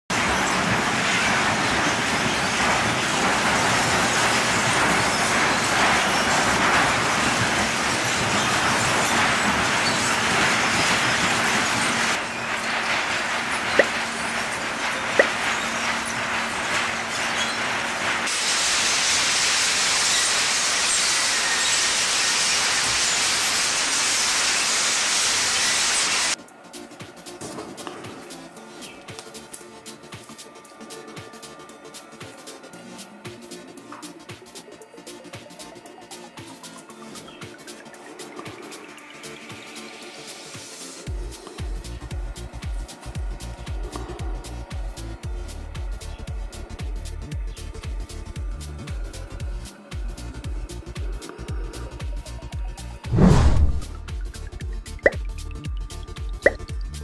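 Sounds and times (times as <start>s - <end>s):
industrial shredder tearing foil: 0.2s - 26.3s.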